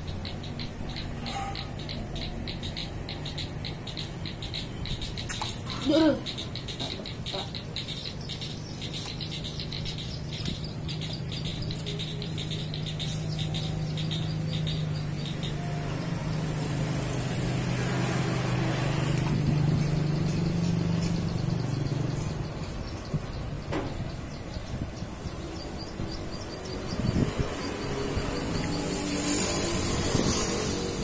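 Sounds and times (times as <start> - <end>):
rhythmic high-pitched chirping: 0.0 - 31.0
vehicle engine passing by: 9.2 - 31.0.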